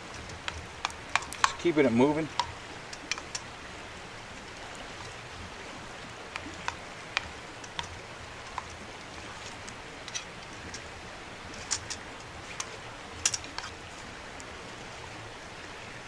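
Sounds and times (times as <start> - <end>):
campfire coals crackling and popping: 0.0 - 16.0
steady hiss: 0.0 - 16.0.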